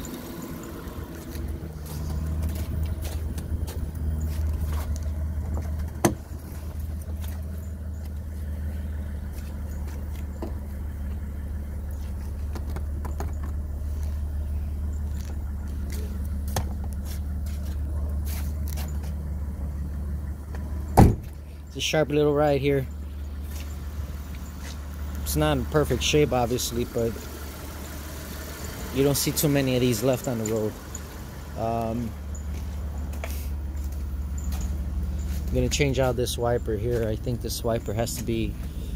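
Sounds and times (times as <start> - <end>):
car engine idling: 0.0 - 38.9
sharp knocks and clicks: 12.5 - 13.6.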